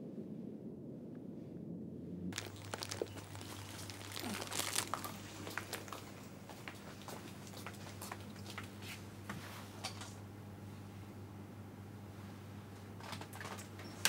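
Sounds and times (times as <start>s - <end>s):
low hum: 0.0s - 8.3s
outdoor ambience rumble: 0.0s - 14.0s
plastic crisp packet crinkling: 2.4s - 6.2s.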